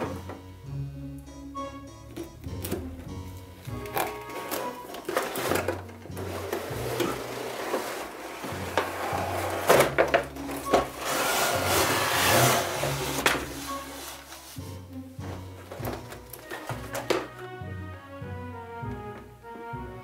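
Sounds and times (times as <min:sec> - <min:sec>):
background music with bass: 0:00.0 - 0:20.0
rubbing and scraping handling noise: 0:02.1 - 0:17.6.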